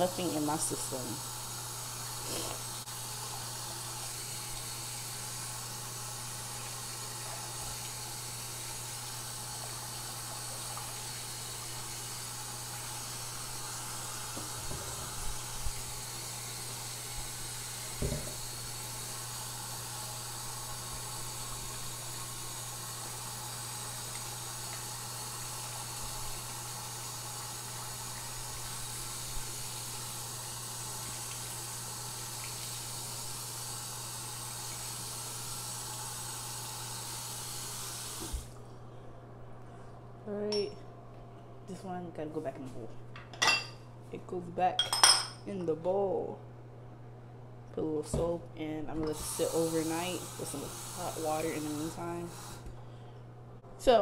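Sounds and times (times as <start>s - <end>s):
tap running into sink: 17.9s - 18.4s.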